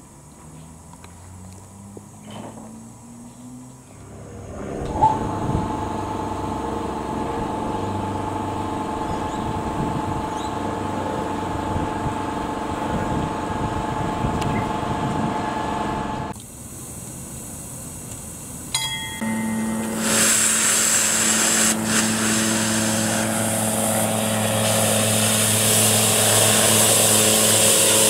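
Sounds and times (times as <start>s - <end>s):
faint high whine: 0.0s - 28.0s
steam locomotive hissing: 16.6s - 28.0s.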